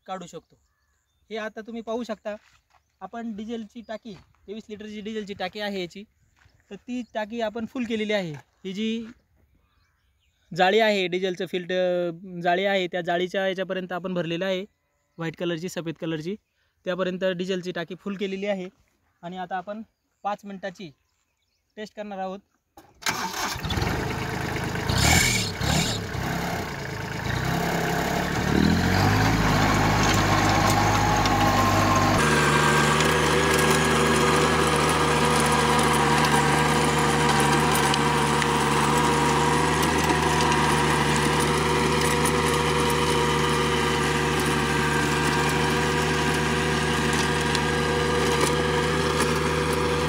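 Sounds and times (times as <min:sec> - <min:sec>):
diesel tractor engine: 0:22.8 - 0:50.0
rotavator whine: 0:23.0 - 0:50.0.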